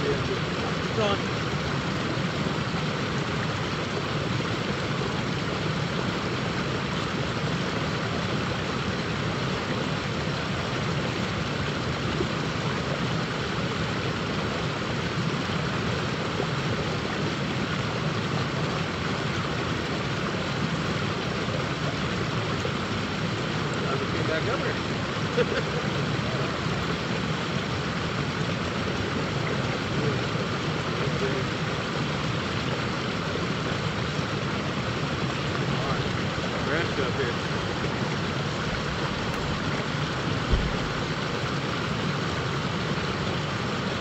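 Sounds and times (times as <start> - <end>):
river water rushing over riffle: 0.0 - 44.0.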